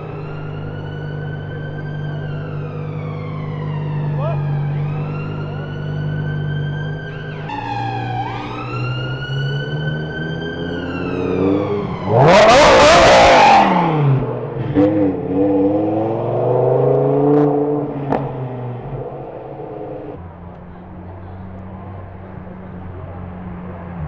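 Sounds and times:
sports car engine revving: 8.7 - 20.2.

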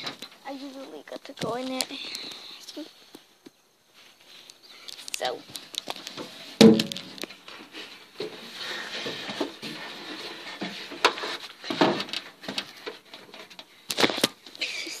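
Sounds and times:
clicks and rustles: 0.0 - 2.5, 4.4 - 14.8
loud knock: 6.6 - 7.1.

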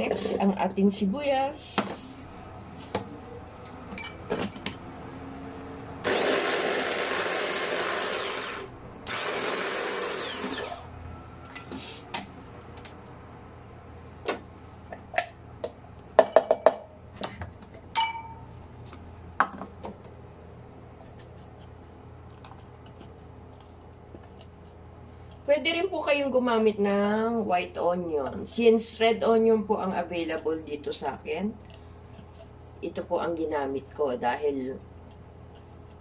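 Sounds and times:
food chopper motor running: 6.0 - 10.9.

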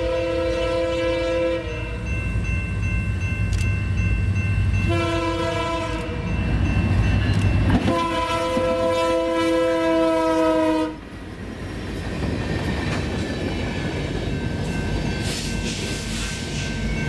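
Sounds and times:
locomotive air horn chord: 0.0 - 1.9, 4.9 - 6.2, 7.8 - 11.0
passing train rumble and wheels: 0.0 - 17.0.

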